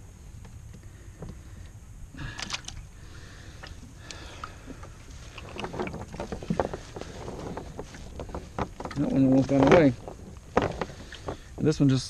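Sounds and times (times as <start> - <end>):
net mesh rustling: 5.0 - 11.7.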